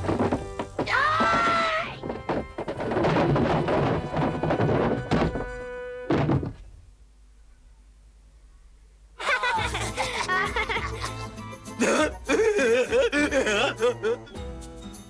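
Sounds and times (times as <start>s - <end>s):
background music: 0.0s - 6.1s, 9.2s - 15.0s
cartoon thunks and knocks: 0.0s - 6.7s.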